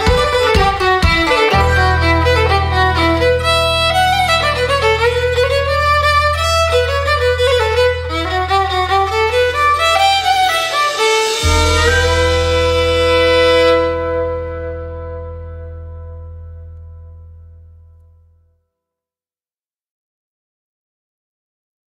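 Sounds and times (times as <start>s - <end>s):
fiddle playing quick melody: 0.0s - 16.8s
low bass note: 1.5s - 18.4s.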